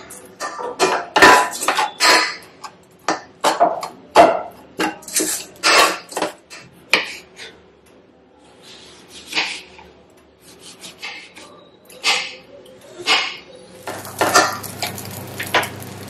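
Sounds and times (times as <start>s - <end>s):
wooden spatula scraping a metal pot: 4.8s - 7.6s.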